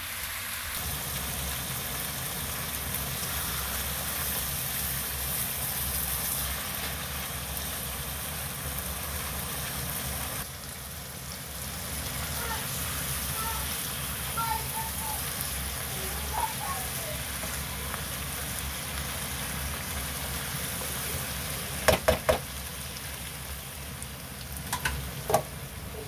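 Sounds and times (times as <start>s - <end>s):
food sizzling in a wok: 0.0s - 26.0s
spatula knocking against pan: 21.9s - 22.4s.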